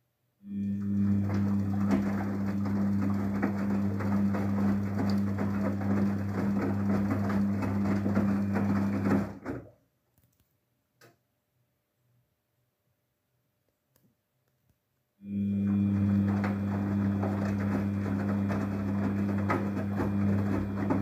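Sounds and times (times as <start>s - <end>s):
washing machine hum: 0.4s - 9.8s, 15.2s - 21.0s.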